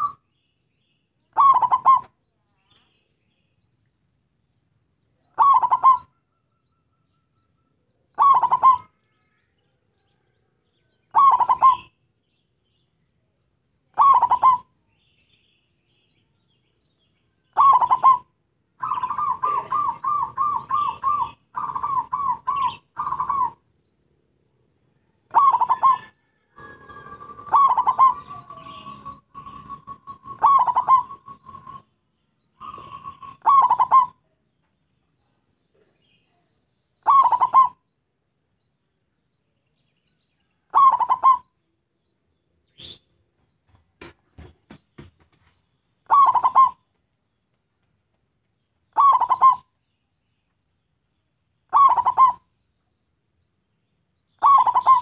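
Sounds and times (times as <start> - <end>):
dove cooing: 1.3 - 2.2, 5.3 - 6.2, 8.1 - 9.0, 11.1 - 12.0, 13.9 - 14.7, 17.5 - 23.6, 25.3 - 32.0, 32.6 - 34.3, 37.0 - 37.8, 40.7 - 41.5, 46.0 - 46.9, 48.9 - 49.8, 51.7 - 52.5, 54.4 - 55.0.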